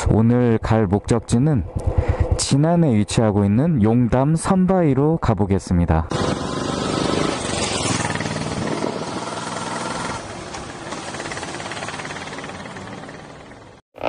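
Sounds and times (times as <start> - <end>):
motorcycle engine passing by: 6.1 - 13.8.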